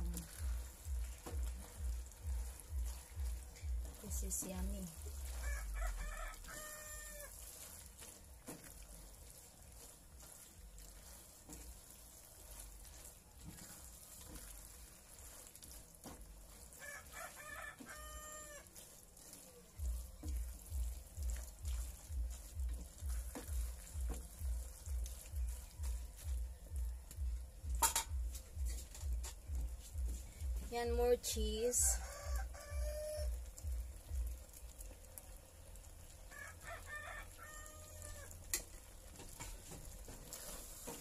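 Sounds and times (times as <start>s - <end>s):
soft thumps of pasta stirring: 0.0s - 41.0s
rooster crowing: 5.4s - 7.4s, 16.8s - 18.7s, 31.8s - 33.4s, 36.3s - 38.4s.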